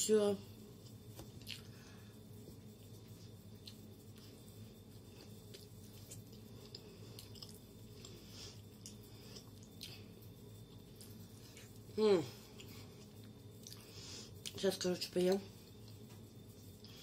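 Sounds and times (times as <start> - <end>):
person chewing: 0.8 - 1.8, 2.6 - 14.6.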